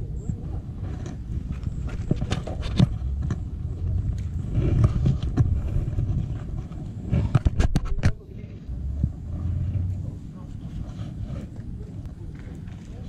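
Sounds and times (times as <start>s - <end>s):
wind rumbling on microphone: 0.0s - 13.0s
sharp clicks and knocks: 0.9s - 8.2s.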